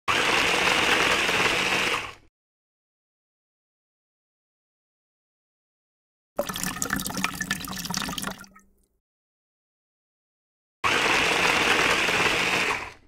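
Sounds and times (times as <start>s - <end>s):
electric drill mixing paint: 0.1s - 2.3s, 10.8s - 13.0s
liquid pouring into tin: 6.4s - 8.8s.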